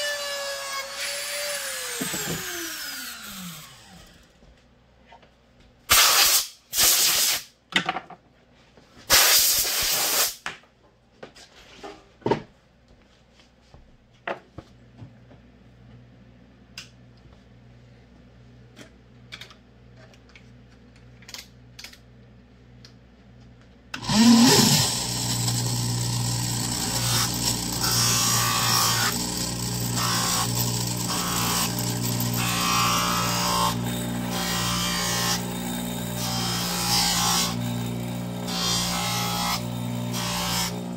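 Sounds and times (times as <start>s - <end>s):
bench grinder running: 0.0s - 4.4s, 24.0s - 40.9s.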